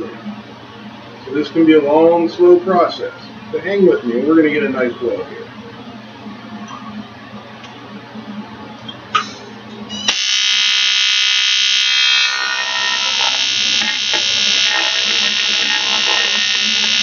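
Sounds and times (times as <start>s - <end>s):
welding arc buzzing: 9.9s - 17.0s.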